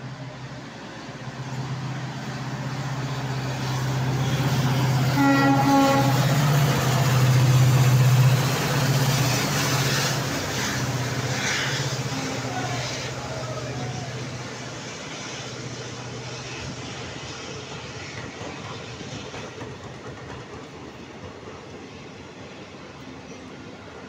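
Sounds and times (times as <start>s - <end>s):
locomotive engine drone: 0.0s - 18.8s
coaches rattling over rail joints: 3.6s - 22.3s
train horn: 5.1s - 6.5s.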